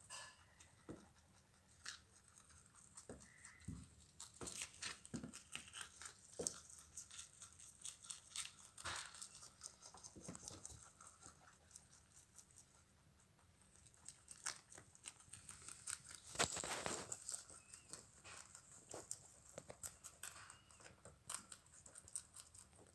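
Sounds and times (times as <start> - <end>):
rabbits chewing leaves: 0.0 - 22.9
leaves crinkling: 14.0 - 20.6.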